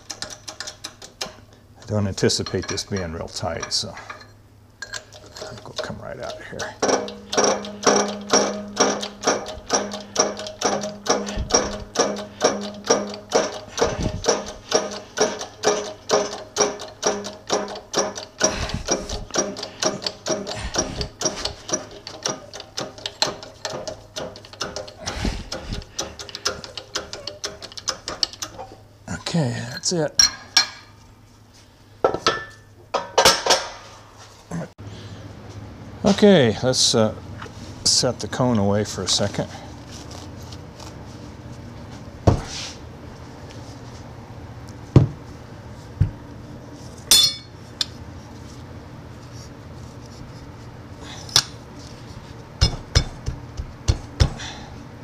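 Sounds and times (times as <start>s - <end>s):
hand pump clicking and clanking: 0.0s - 4.2s, 4.8s - 28.8s
metallic knocks: 5.6s - 28.6s
metal clink with high ring: 47.1s - 47.6s.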